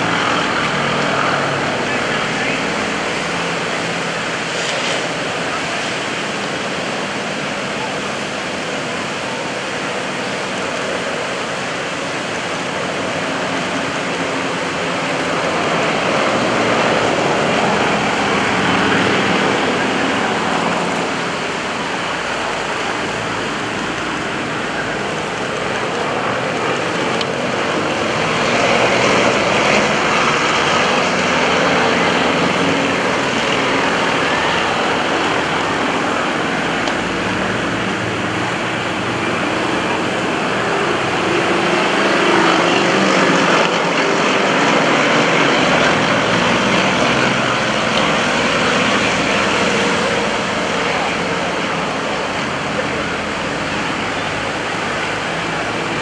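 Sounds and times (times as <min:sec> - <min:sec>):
propeller planes droning overhead: 0:00.0 - 0:56.0.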